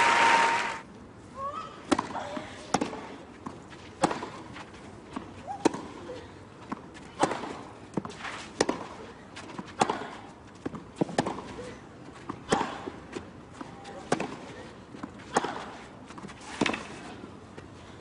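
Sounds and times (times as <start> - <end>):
racket hitting tennis ball: 4.0 - 4.4, 7.2 - 9.0, 15.1 - 17.0.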